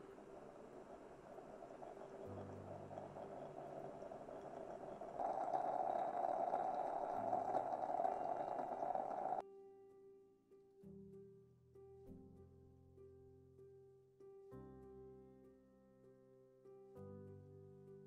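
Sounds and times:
moka pot hissing and gurgling: 0.0s - 9.4s.

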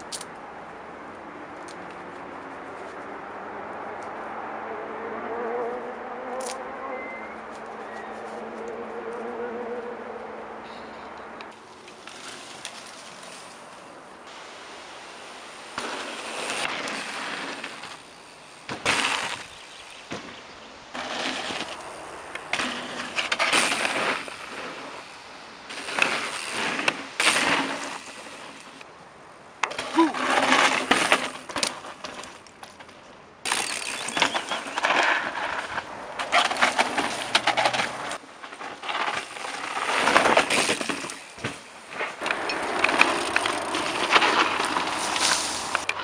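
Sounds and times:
bike clicks and rattles: 0.0s - 0.4s, 11.4s - 28.9s, 29.6s - 46.0s
bike tyres crunching on gravel: 11.5s - 46.0s.

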